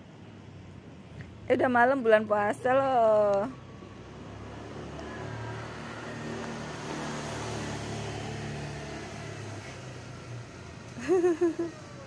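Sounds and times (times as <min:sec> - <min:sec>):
vehicle engine passing: 0:02.6 - 0:12.0.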